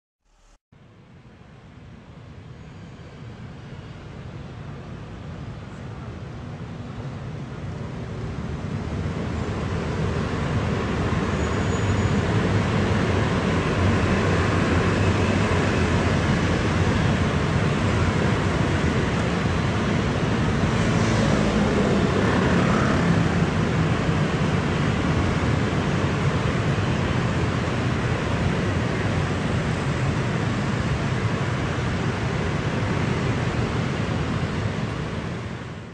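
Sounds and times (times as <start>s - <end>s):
motor scooters riding past: 20.5s - 24.6s.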